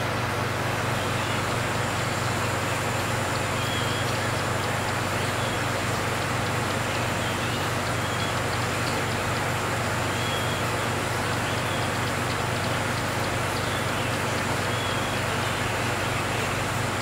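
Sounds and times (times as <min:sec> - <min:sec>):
aquarium equipment humming: 0:00.0 - 0:17.0
faint high chirps: 0:10.0 - 0:16.5.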